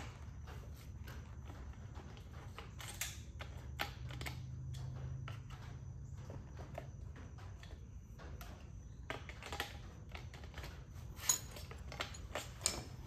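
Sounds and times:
small tools being rummaged: 8.4s - 13.0s.

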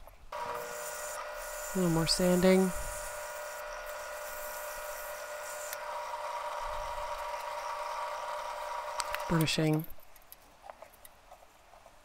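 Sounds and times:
sandpaper rubbing spinning wood: 0.4s - 9.4s
lathe motor hum: 0.4s - 9.5s.

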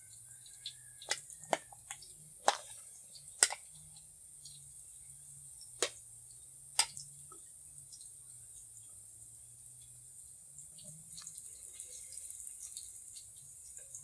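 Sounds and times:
food frying in oil: 0.0s - 14.0s
chopsticks clicking against pan: 3.4s - 3.6s.

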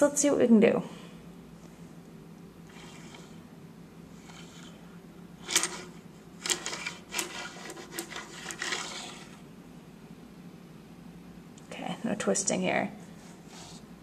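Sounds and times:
coins scraping on wooden floor: 2.7s - 3.4s, 4.2s - 4.8s, 5.4s - 9.4s.

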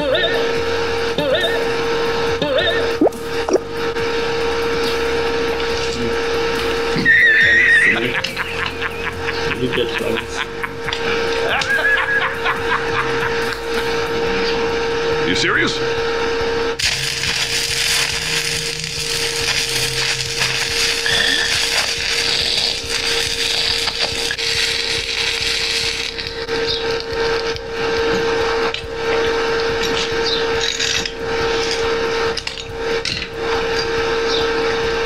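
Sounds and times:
arc welding crackling and hissing: 0.0s - 35.0s
welder whine: 0.0s - 35.0s.

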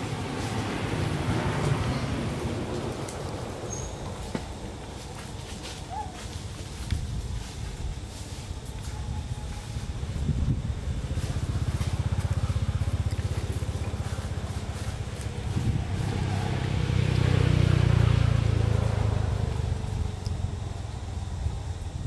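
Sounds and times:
vehicle engine passing by: 0.0s - 5.0s, 10.9s - 21.6s.

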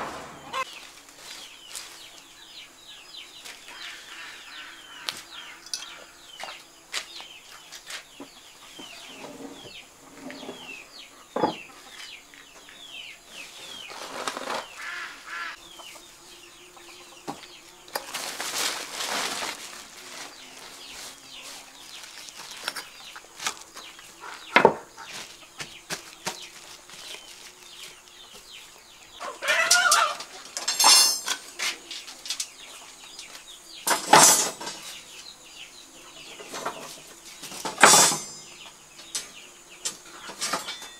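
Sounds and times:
chickens clucking: 0.0s - 0.9s, 7.6s - 35.2s
small birds chirping: 0.0s - 40.9s
plastic sheet rustling: 18.0s - 22.8s.

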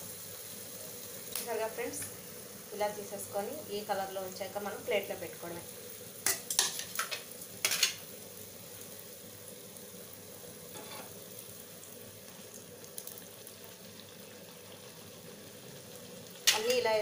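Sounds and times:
oil sizzling: 0.0s - 17.0s
spoon scraping and knocking pan: 6.2s - 8.0s, 10.7s - 11.1s.

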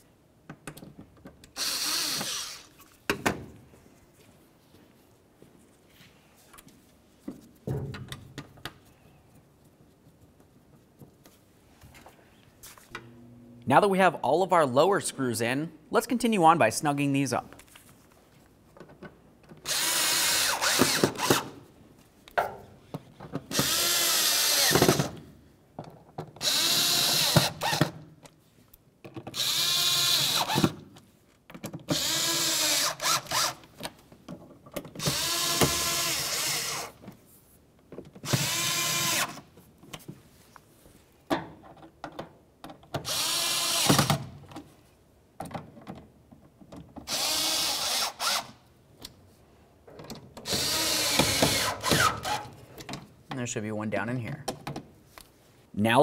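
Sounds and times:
cordless drill running in bursts: 1.6s - 2.6s, 19.7s - 21.4s, 23.5s - 24.9s, 26.4s - 27.8s, 29.4s - 30.6s, 32.0s - 33.6s, 35.0s - 36.9s, 38.3s - 39.4s, 43.1s - 44.0s, 47.1s - 48.5s, 50.5s - 52.4s.

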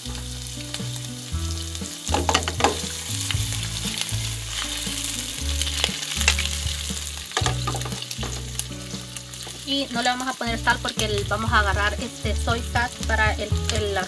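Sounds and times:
shrimp sizzling in oil: 0.0s - 14.0s
clicks and scrapes in pan: 2.1s - 3.0s, 7.3s - 8.6s.

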